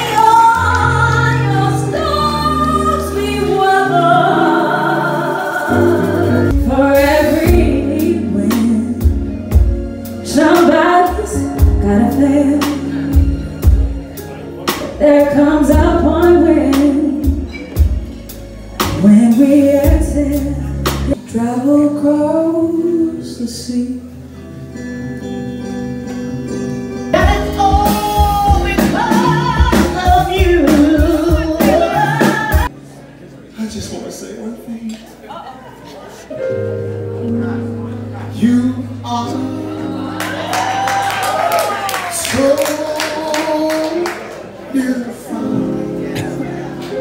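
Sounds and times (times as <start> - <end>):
women singing with instruments: 0.0 - 9.3, 27.2 - 32.7.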